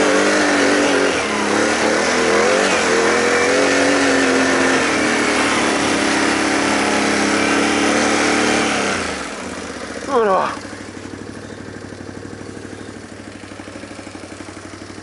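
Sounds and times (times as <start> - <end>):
quad engine revving hard: 0.0 - 11.6.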